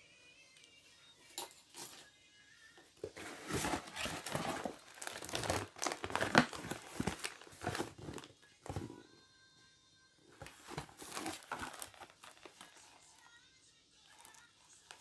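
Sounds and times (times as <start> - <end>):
cardboard box flaps rustling: 3.2 - 9.0.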